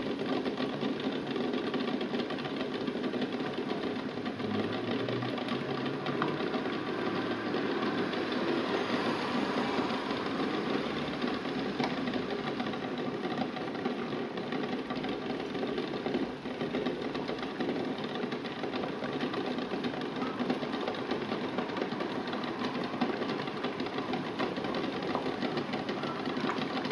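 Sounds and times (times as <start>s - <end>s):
water bubbling at a boil: 0.0s - 26.9s.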